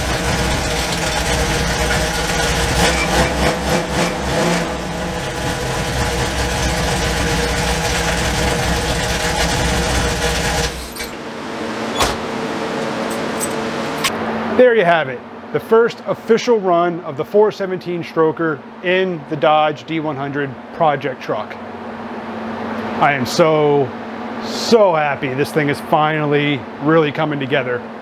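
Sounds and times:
engine idling: 0.0s - 11.8s.

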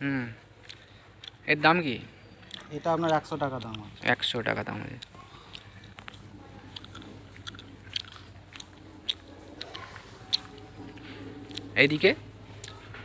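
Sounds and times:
faint low hum: 0.0s - 13.0s
light crackles and clicks: 2.5s - 6.2s.

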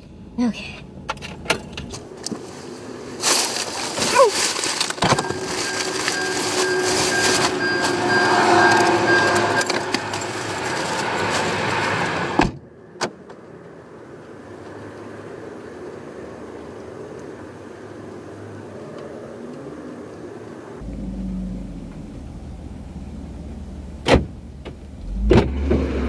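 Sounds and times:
plastic mailers rustling: 2.0s - 12.0s
car door shutting with a thud: 24.0s - 25.9s
car door opening: 24.0s - 26.0s.

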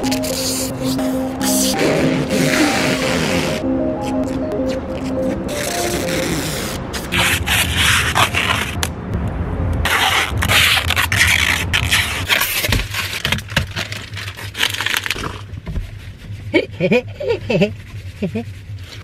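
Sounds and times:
plastic film crinkling: 10.8s - 15.6s.

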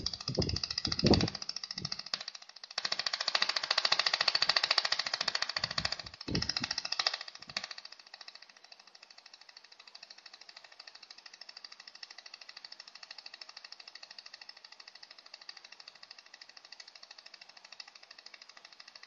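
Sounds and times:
laser welder ticking: 0.0s - 8.5s.

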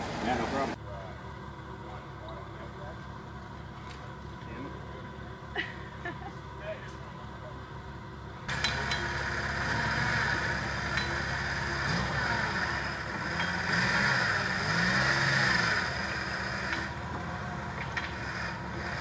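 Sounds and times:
engine revving: 8.5s - 19.0s.

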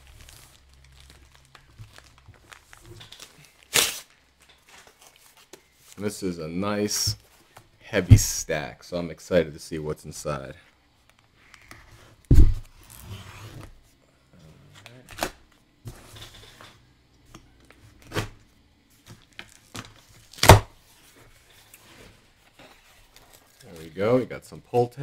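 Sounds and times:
cardboard box knocks and scuffs: 12.3s - 12.6s.

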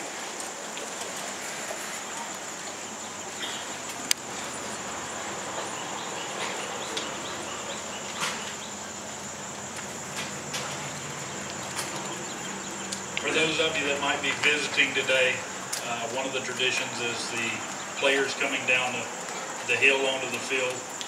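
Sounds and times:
insects trilling: 0.0s - 21.0s
outdoor crowd rustle: 0.0s - 21.0s.

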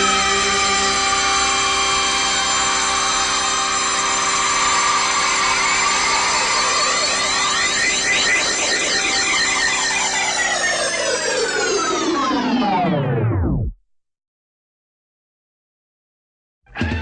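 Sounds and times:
soundtrack music held chords: 0.0s - 5.6s.

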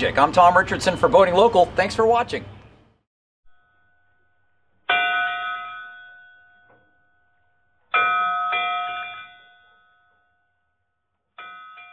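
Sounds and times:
bell chimes ringing: 4.9s - 10.4s, 11.4s - 11.9s.

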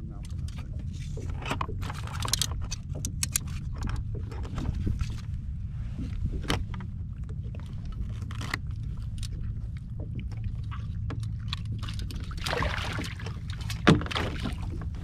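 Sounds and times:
steady low rumble: 0.0s - 15.0s
small clicks and knocks: 0.2s - 5.2s.

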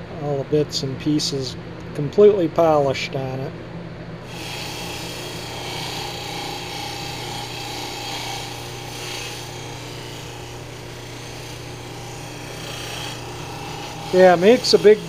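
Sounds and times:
buffer motor hum: 3.7s - 15.0s
metal strip rubbing on wheel: 4.3s - 15.0s.

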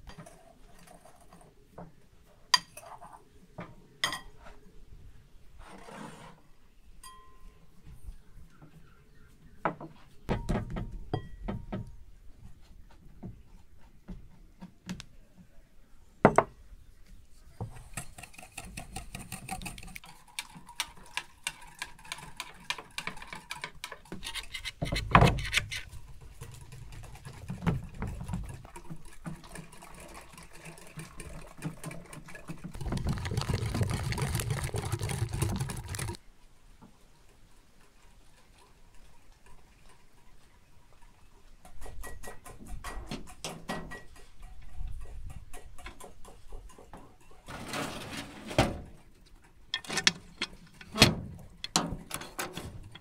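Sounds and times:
whisk beating eggs in a bowl: 30.9s - 36.2s.

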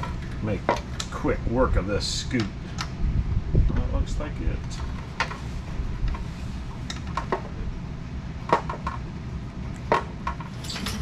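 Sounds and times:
metal parts and tools clinking: 10.2s - 11.0s.

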